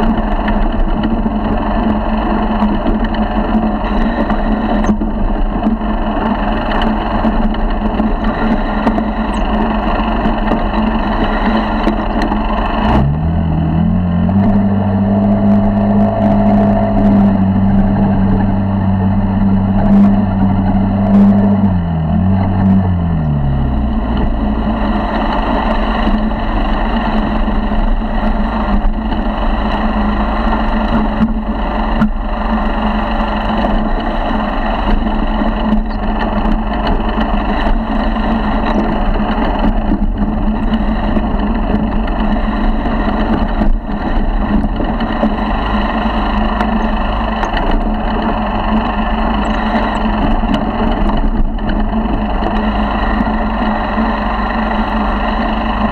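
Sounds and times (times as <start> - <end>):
motorized bicycle engine running: 0.0 - 55.9.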